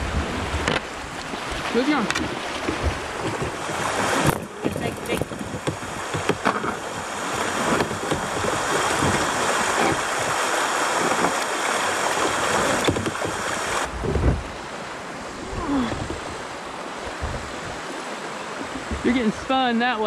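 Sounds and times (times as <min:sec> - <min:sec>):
paddle strokes splashing: 0:00.0 - 0:19.9
water rushing over rocks: 0:00.0 - 0:20.0.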